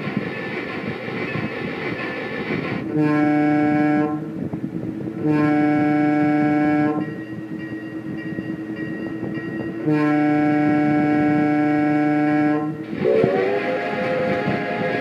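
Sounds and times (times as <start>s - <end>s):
toy train rumbling on track: 0.0s - 4.5s, 5.4s - 15.0s
toy train horn blasts: 2.9s - 4.3s, 5.2s - 7.1s, 9.8s - 15.0s.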